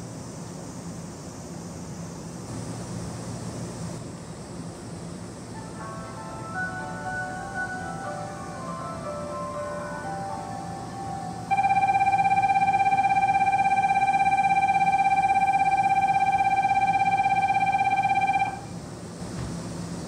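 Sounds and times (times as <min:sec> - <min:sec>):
electric bell ringing: 0:05.5 - 0:18.7.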